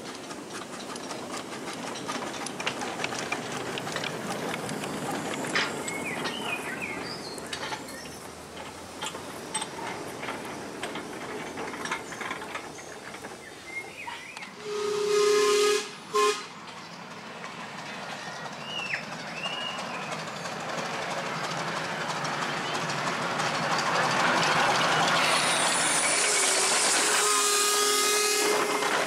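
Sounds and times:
steam locomotive whistle: 14.6 - 16.5, 25.2 - 29.0.

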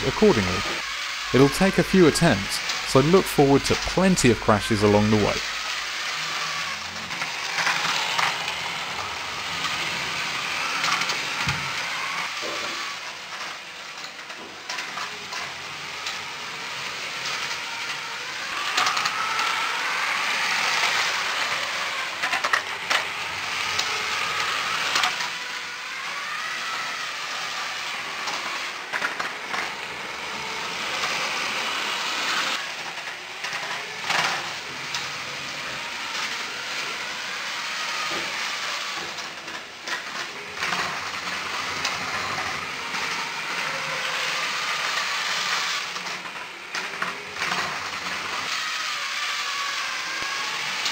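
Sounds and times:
electric motors whining: 0.0 - 50.9.

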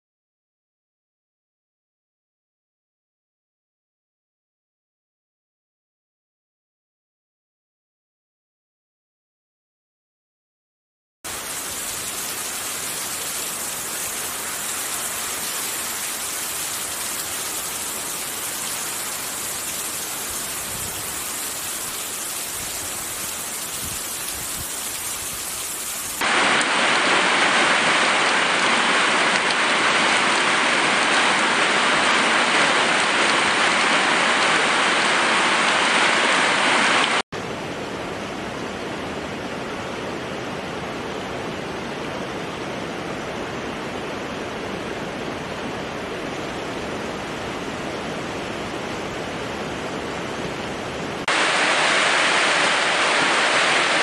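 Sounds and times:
stream running over rocks: 11.3 - 37.2, 43.7 - 54.0
heavy rain on foliage: 11.3 - 54.0.

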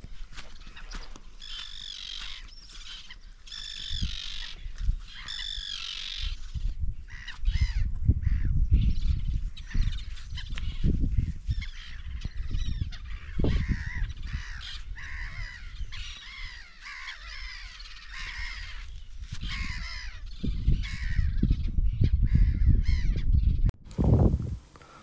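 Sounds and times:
crows cawing: 0.7 - 6.4, 7.1 - 8.6, 11.5 - 21.4.

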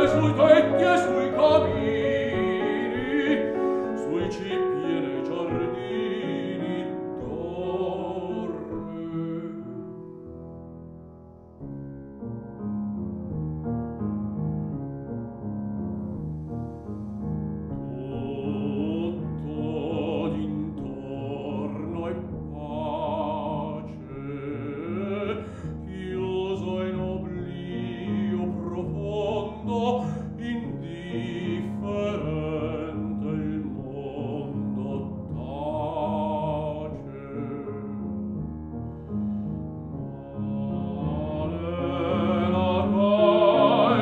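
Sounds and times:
baritone singing with vibrato: 0.0 - 10.1, 17.8 - 38.3, 40.1 - 44.0
piano chords: 0.0 - 44.0.

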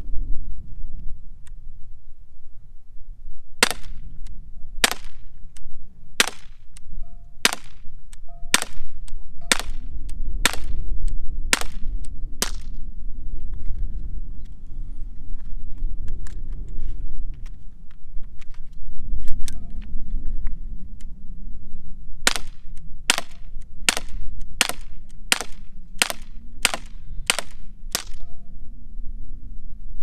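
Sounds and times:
air pistol sharp pops: 3.6 - 10.8, 11.5 - 12.8, 22.3 - 28.2.

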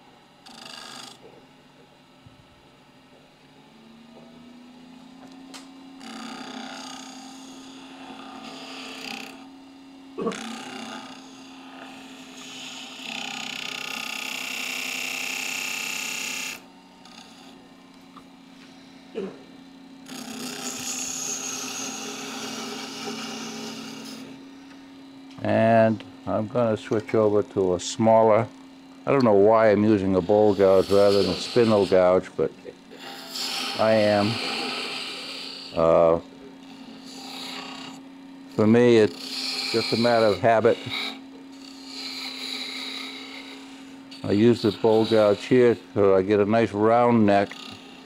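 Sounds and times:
wood lathe humming: 0.0 - 1.2, 3.1 - 48.0
gouge scraping wood: 20.2 - 24.2, 30.2 - 32.2, 39.1 - 41.2, 41.8 - 45.8.

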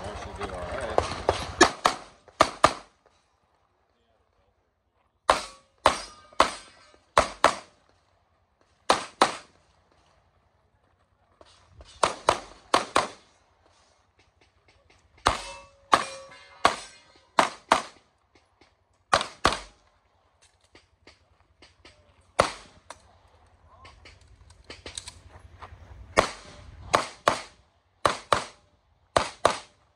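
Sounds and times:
pistol shots: 1.1 - 2.9, 5.3 - 7.7, 8.9 - 9.6, 12.0 - 13.2, 15.2 - 18.0, 19.1 - 19.8, 22.3 - 22.9, 26.2 - 28.6, 29.2 - 29.9.

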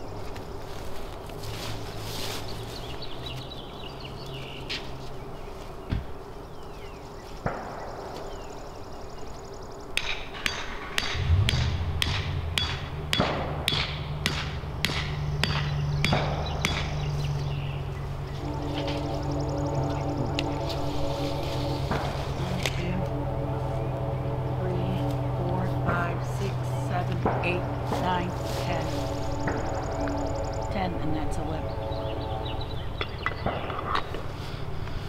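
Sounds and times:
hammer striking fence post: 10.0 - 17.1
low engine hum: 11.1 - 35.0.

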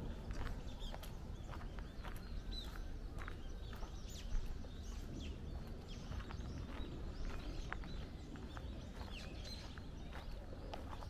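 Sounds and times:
footsteps crunching on path: 0.0 - 11.0
small birds chirping: 0.0 - 11.0.

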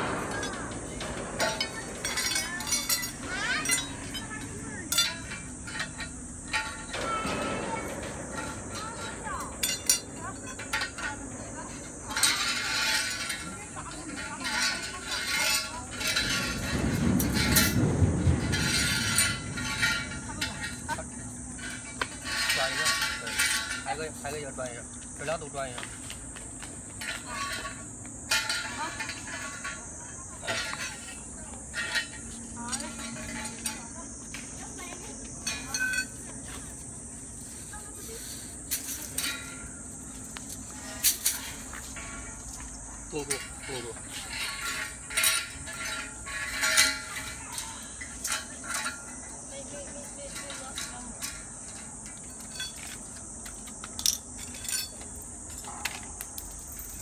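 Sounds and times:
metal clamps clinking on pipe: 0.0 - 17.8, 30.4 - 33.9, 35.4 - 36.2, 43.1 - 57.0
sharp ringing metal clanks: 0.0 - 24.6, 27.0 - 36.3, 38.7 - 53.0
steady high hiss: 0.0 - 57.0.

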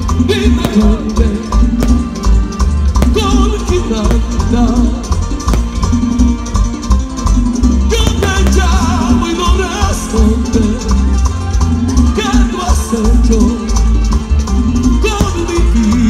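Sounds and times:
live latin dance band: 0.0 - 16.0.

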